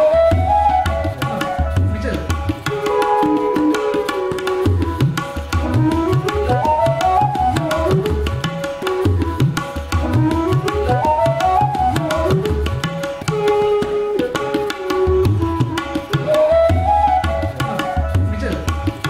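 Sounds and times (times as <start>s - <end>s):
background music melody: 2.7s - 7.8s.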